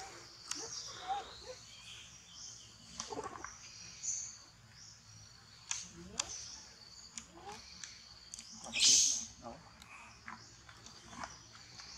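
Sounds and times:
short chirps and squeaky calls: 8.6 - 9.4.

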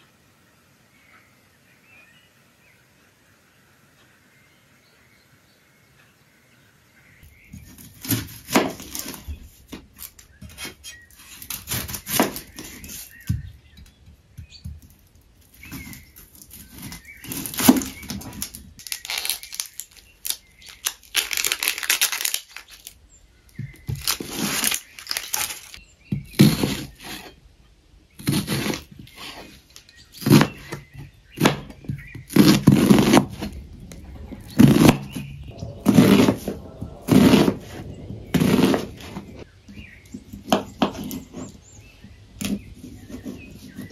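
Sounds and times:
onion skin crackling and tearing: 15.6 - 23.0, 23.9 - 25.8.

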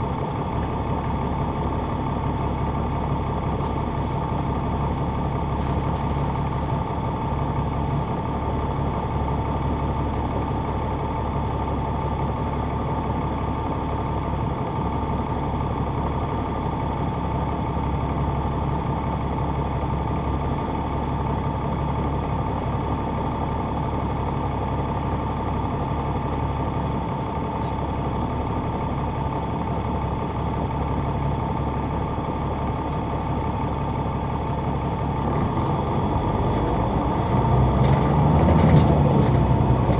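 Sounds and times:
bus diesel engine running: 0.0 - 39.9.

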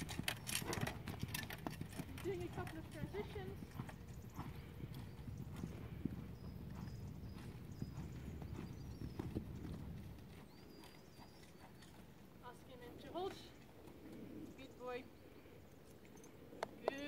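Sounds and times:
horse hoofbeats on sand: 0.0 - 12.2.

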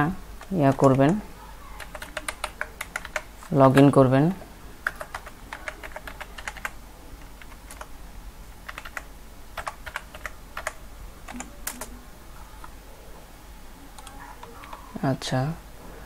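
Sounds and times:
computer keyboard typing: 0.4 - 4.0, 4.8 - 7.9, 8.6 - 12.0, 14.0 - 14.9.

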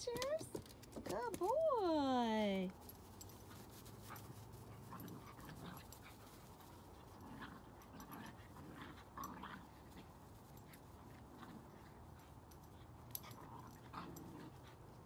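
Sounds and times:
dogs panting: 3.2 - 15.0.

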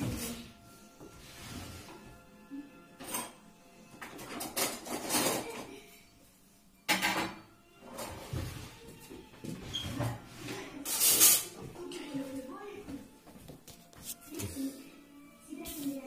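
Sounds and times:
dishes and cutlery clattering: 2.9 - 6.2, 6.8 - 8.7, 9.6 - 12.1.

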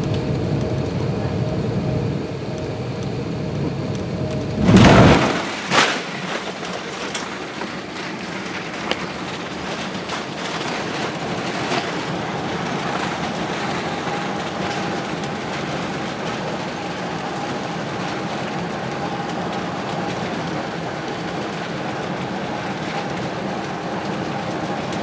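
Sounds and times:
engine and airflow rush: 0.0 - 25.0
faint steady whine: 0.0 - 25.0
landing gear rumble: 3.2 - 14.4.

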